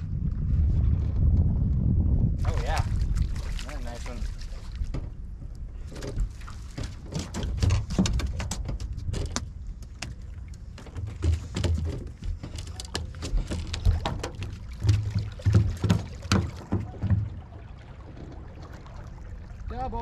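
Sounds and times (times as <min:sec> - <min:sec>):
clicks and knocks on boat deck: 0:04.7 - 0:17.4.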